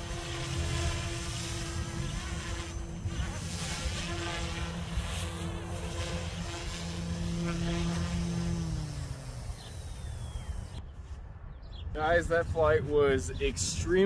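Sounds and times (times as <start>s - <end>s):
rc helicopter rotor whining: 0.0s - 10.8s.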